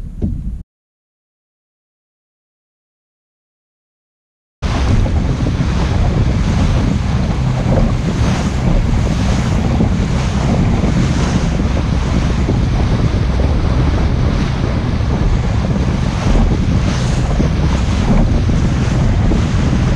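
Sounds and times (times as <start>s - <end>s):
outboard motor running: 4.6s - 19.9s
wake splashing: 4.6s - 19.9s
wind buffeting microphone: 4.6s - 19.9s.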